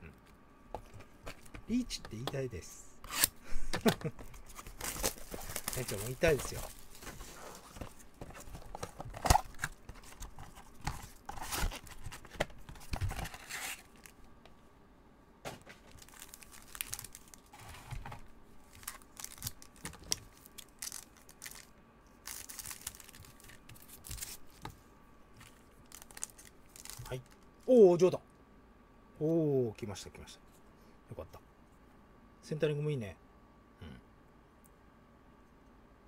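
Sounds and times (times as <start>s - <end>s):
cardboard tearing: 3.0s - 3.3s, 4.4s - 7.7s, 8.3s - 14.0s
plastic wrappers crinkling: 4.1s - 14.2s, 15.8s - 17.6s, 18.6s - 24.5s, 25.4s - 27.5s.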